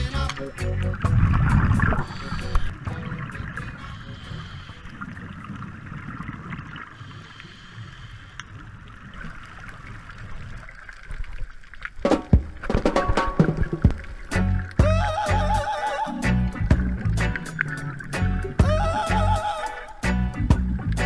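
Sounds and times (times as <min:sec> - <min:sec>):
underwater rumble of moving water: 0:00.0 - 0:15.5.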